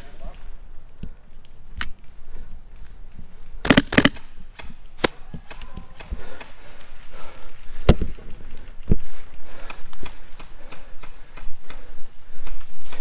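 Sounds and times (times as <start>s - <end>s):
airsoft rifle shots: 3.6s - 6.1s.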